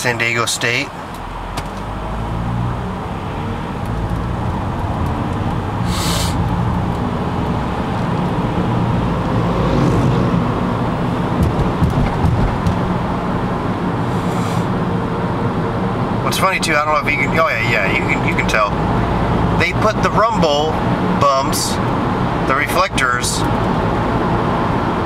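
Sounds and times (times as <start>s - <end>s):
car engine and tyre hum: 0.0s - 25.0s
short hiss: 5.8s - 6.4s, 14.1s - 14.7s.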